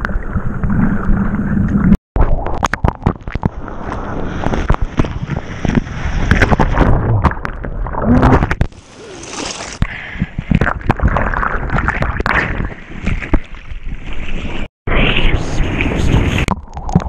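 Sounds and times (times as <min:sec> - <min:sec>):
seawater splashing against camera: 0:02.2 - 0:09.8.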